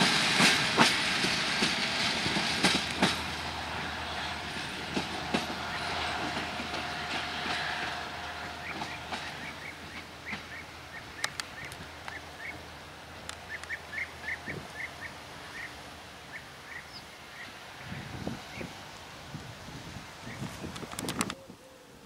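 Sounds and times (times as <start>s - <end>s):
distant train rumble: 0.0s - 22.0s
birds chirping: 4.1s - 18.7s.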